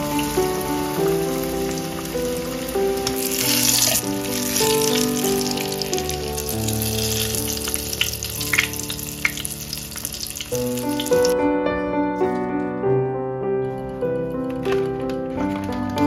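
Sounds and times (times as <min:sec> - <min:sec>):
food deep-frying in oil: 0:00.0 - 0:11.4.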